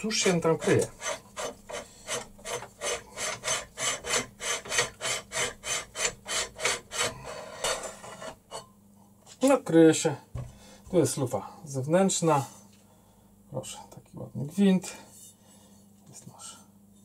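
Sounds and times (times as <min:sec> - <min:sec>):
barrel rasping on thread: 0:00.0 - 0:08.6.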